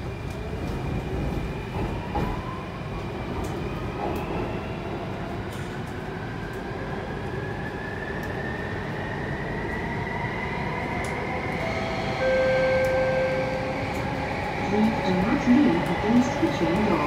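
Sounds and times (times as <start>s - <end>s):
steady higher tone: 11.6s - 14.1s.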